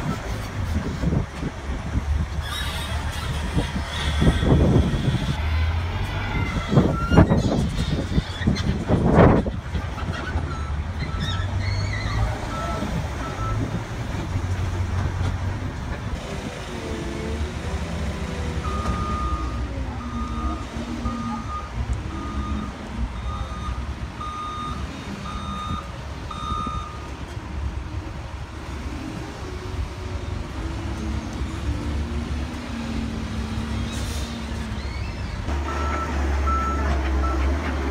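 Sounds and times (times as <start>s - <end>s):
diesel machinery engine: 0.0s - 37.9s
reversing alarm beeping: 18.6s - 27.1s, 35.6s - 37.5s.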